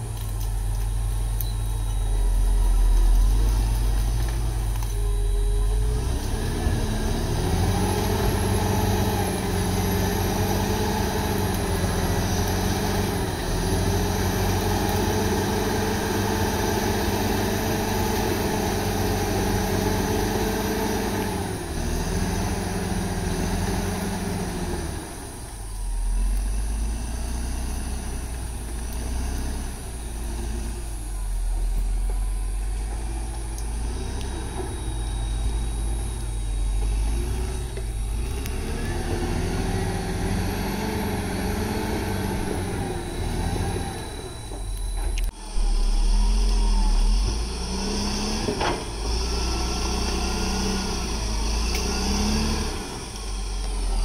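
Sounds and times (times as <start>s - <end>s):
bulldozer diesel engine rumbling: 0.0s - 54.0s.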